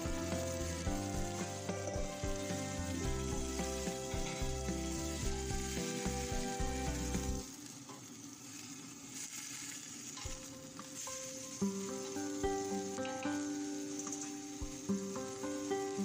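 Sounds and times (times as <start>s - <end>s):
background music: 0.0s - 7.5s, 11.2s - 16.0s
vegetables sizzling in pot: 0.0s - 16.0s.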